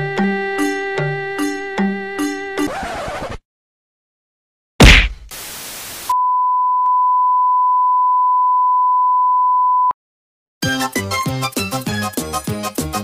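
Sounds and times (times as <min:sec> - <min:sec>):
short loud hit: 0:04.8 - 0:05.2
static hiss: 0:04.9 - 0:06.1.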